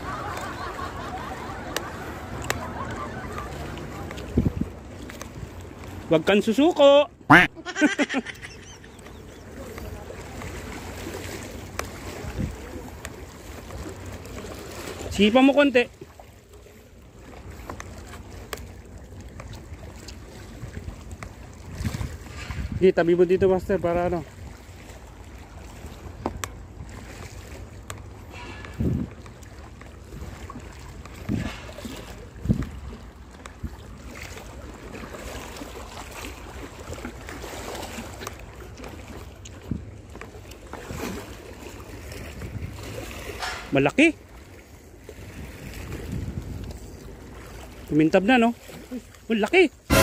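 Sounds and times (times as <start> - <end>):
wind rumbling on microphone: 0.0 - 5.8, 12.2 - 12.8, 20.5 - 24.6, 28.4 - 29.2, 31.1 - 33.9, 42.2 - 43.2, 45.2 - 47.6
sea waves washing against rocks: 0.0 - 16.0, 44.8 - 50.0
sea water washing against rocks: 0.0 - 50.0.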